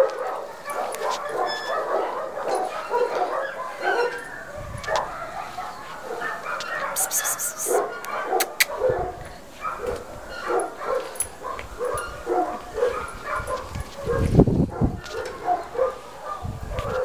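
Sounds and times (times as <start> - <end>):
dog whining and yipping: 1.2 - 2.1, 2.7 - 5.0.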